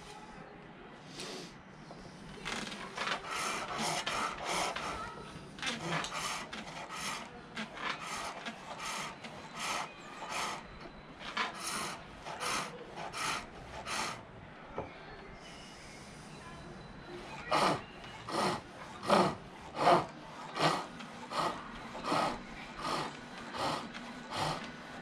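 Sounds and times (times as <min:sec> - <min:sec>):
lathe tool shaving wood: 0:02.6 - 0:14.2, 0:17.3 - 0:25.0.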